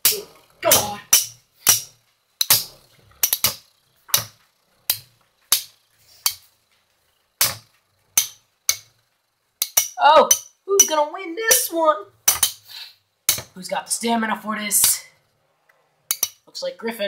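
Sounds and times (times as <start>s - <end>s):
spinning tops clacking: 0.0s - 6.6s, 7.3s - 9.0s, 9.6s - 12.7s.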